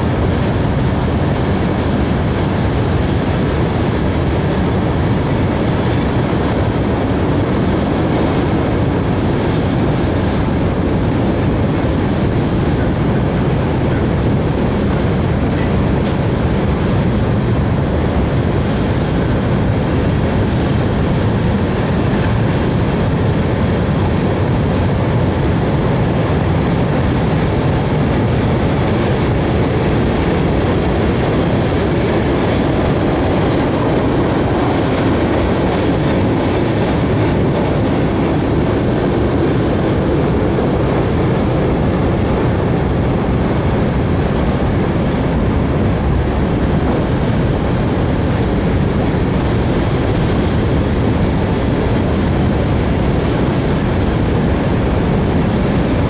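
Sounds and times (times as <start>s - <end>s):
train wheels on rail: 0.0s - 56.0s.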